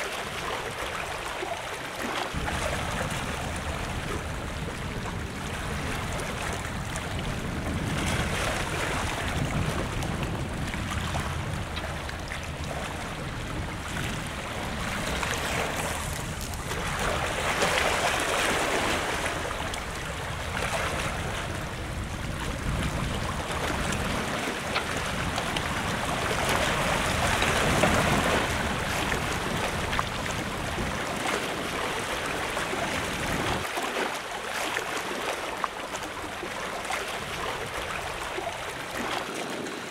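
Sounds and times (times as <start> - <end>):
wind rumbling on microphone: 0.0 - 34.6, 35.5 - 39.9
sea waves washing against wall: 0.0 - 39.9.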